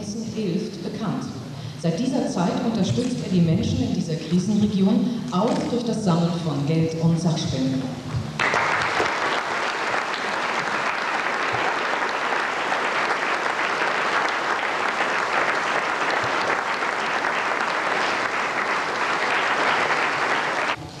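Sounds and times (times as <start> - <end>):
audience applauding: 8.3 - 20.8.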